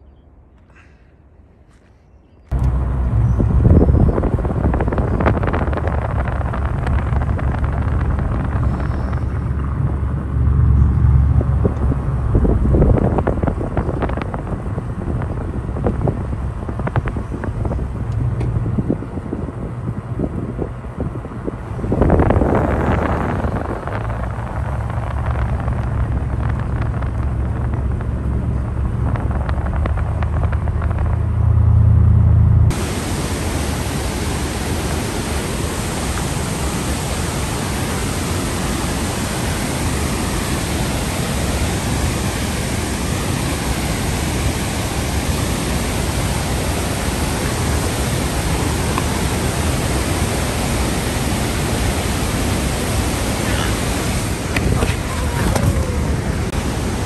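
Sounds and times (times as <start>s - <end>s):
car road rumble: 2.5s - 57.0s
whitewater creek rushing: 32.7s - 57.0s.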